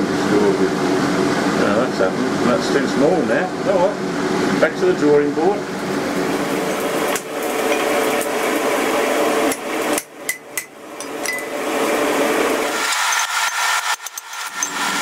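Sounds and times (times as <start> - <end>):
hammer striking metal: 10.0 - 11.5.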